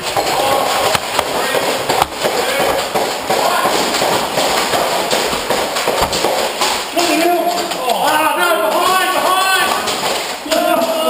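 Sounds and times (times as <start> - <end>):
players shouting: 7.0 - 11.0.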